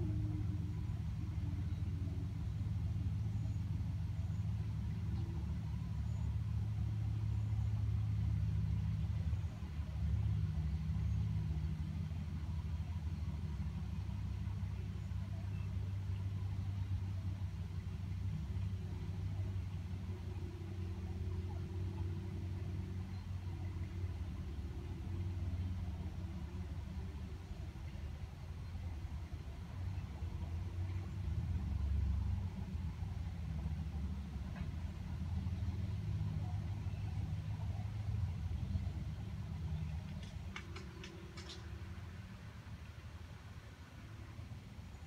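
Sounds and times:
air conditioner low hum: 0:00.0 - 0:45.0.

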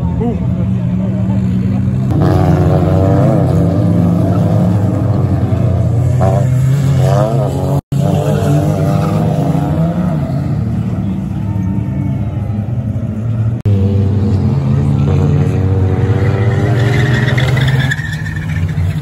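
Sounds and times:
racing car engines revving: 0:00.0 - 0:19.0.

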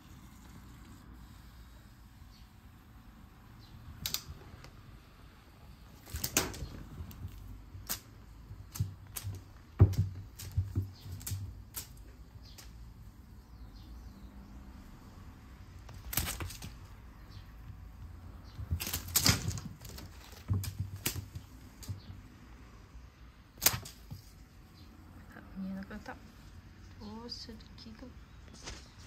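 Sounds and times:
cat thumping on wooden floor: 0:06.0 - 0:12.0, 0:18.4 - 0:22.2.

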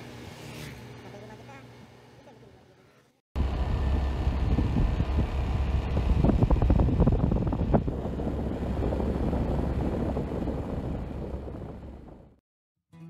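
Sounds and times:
wind rumbling on microphone: 0:03.4 - 0:12.4.

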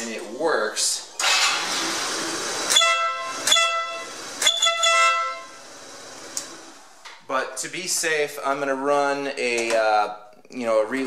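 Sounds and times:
air horn hissing: 0:02.6 - 0:06.2
air horn blasts: 0:02.7 - 0:05.8.

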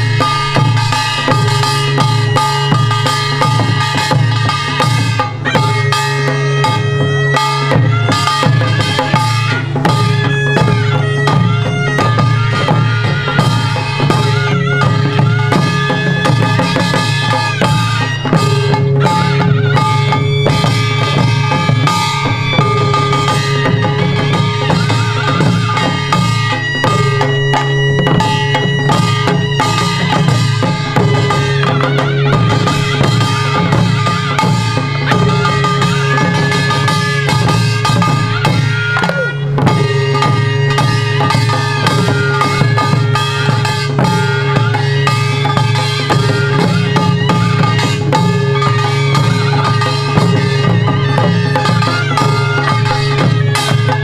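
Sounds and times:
held wavering melodic notes: 0:00.0 - 0:54.0.

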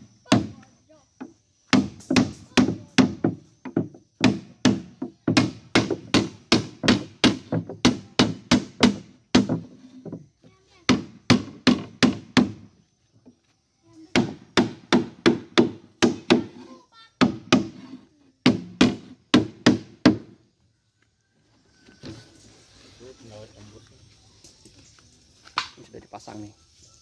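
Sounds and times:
hammer nailing wood: 0:01.7 - 0:09.7, 0:14.2 - 0:16.5, 0:18.4 - 0:20.3.

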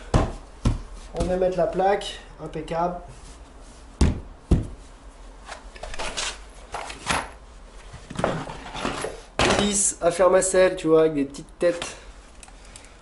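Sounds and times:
dull knocks of floor board: 0:00.1 - 0:01.4, 0:04.0 - 0:04.8.

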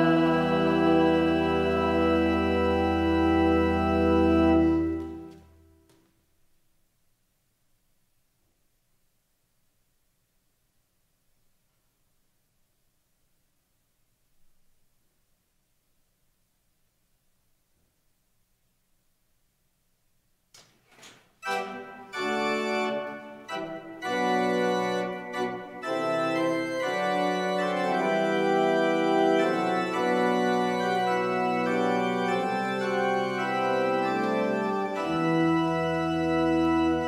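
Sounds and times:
deep organ pedal bass: 0:00.0 - 0:05.3, 0:21.4 - 0:37.0
church organ chords: 0:00.0 - 0:05.8, 0:21.4 - 0:37.0.

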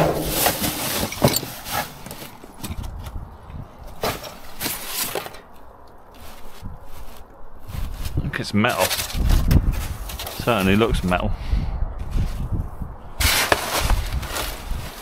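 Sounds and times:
plastic bags rustling: 0:00.0 - 0:03.2
rubbish scraping and knocking in skip: 0:00.0 - 0:03.2, 0:03.9 - 0:10.8, 0:13.2 - 0:15.0.

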